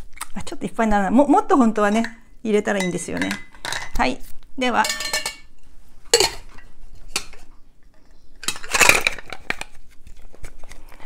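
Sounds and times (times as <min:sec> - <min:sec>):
glass clinking against metal tin: 0:02.8 - 0:04.0, 0:04.8 - 0:05.5, 0:06.2 - 0:06.6.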